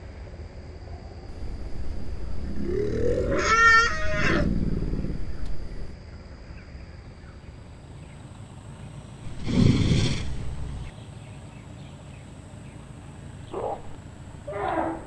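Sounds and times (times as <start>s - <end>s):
low outdoor background: 0.1s - 15.0s
elephant roaring: 1.3s - 6.0s, 9.3s - 10.9s, 13.5s - 15.0s.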